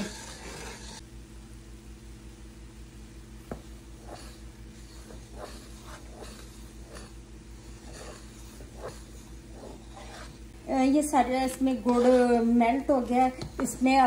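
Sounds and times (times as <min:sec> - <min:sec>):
wooden spatula scraping wok: 0:00.0 - 0:01.0, 0:11.5 - 0:12.6
steady low hum: 0:00.0 - 0:14.0.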